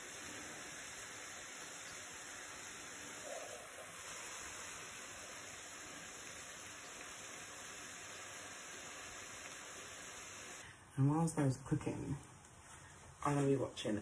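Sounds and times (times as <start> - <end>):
shrimp sizzling in a frying pan: 0.0 - 10.6.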